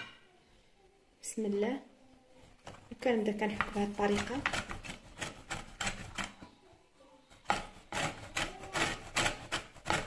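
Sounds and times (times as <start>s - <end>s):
lemon rasping on a metal grater: 4.0s - 6.4s, 7.4s - 10.0s.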